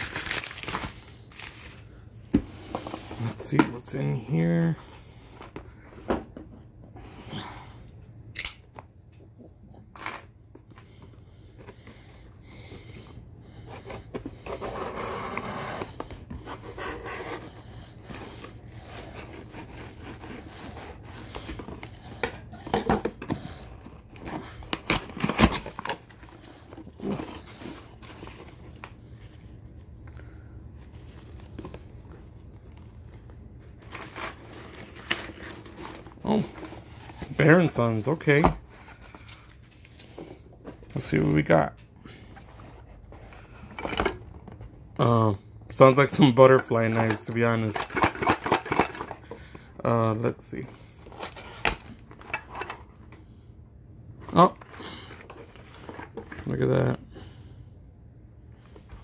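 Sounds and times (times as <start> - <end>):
cardboard tearing: 0.0 - 1.8, 13.9 - 22.1, 23.9 - 28.6.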